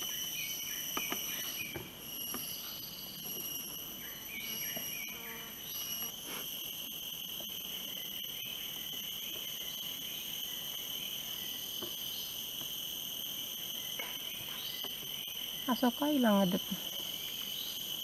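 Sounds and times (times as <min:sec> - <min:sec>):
insects trilling: 0:00.0 - 0:18.0.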